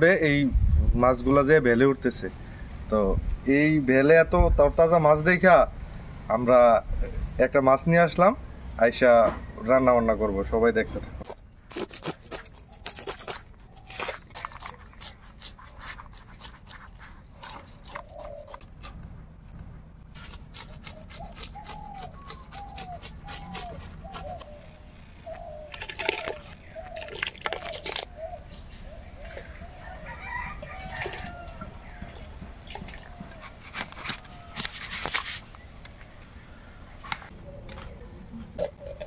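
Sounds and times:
knife scraping fish scales: 11.2 - 18.7, 20.2 - 24.5
bird chirps: 17.8 - 19.8, 21.1 - 30.8
steady high whine: 24.3 - 37.3
hen clucking: 25.2 - 34.6.

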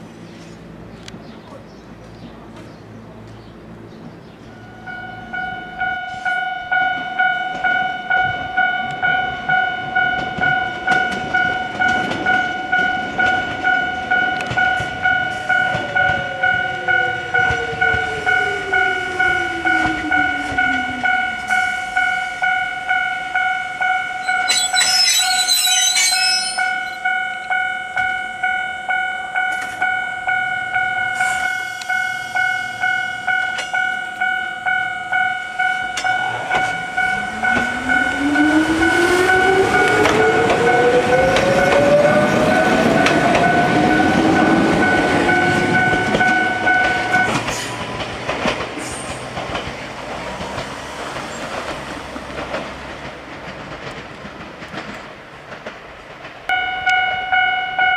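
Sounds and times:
train whine falling in pitch: 4.5 - 48.1
level crossing bell ringing: 4.6 - 31.2, 31.9 - 38.7, 39.3 - 47.4, 56.5 - 57.9.

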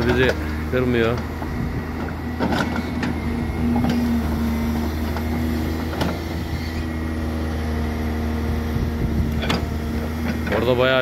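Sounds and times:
backhoe diesel engine running: 0.0 - 11.0.

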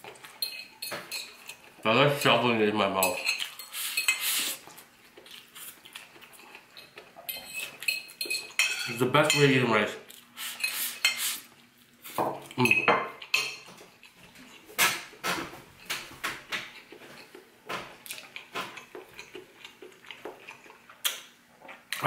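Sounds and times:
fork clinking on a plate: 7.3 - 9.5.

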